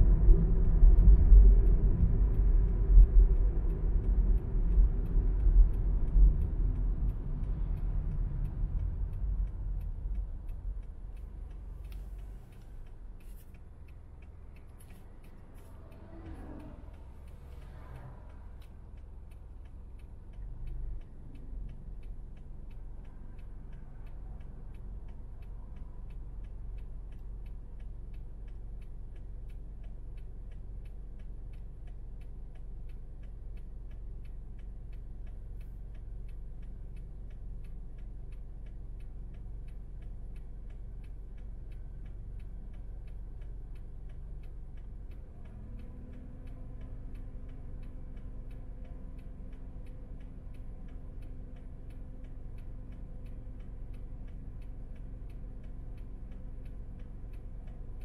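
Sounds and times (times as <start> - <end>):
car engine idling: 0.0 - 58.0
turn signal ticking: 0.0 - 58.0
low drone: 14.6 - 19.0.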